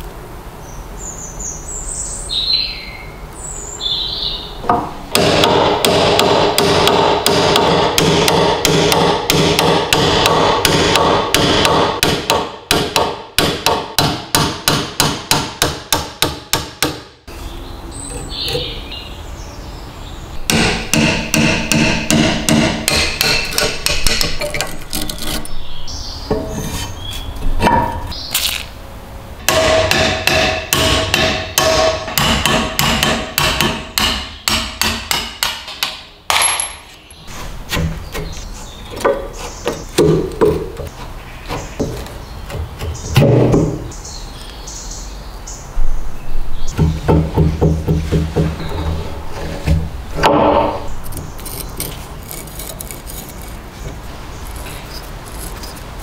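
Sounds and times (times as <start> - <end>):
hammer striking metal punch: 4.7 - 17.1, 20.5 - 24.5, 29.5 - 36.9.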